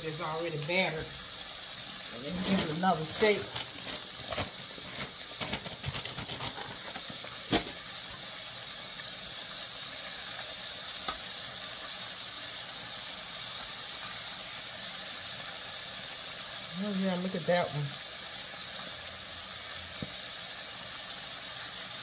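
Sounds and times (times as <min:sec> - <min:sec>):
food sizzling in hot oil: 0:00.0 - 0:22.0
oil crackling: 0:00.0 - 0:22.0.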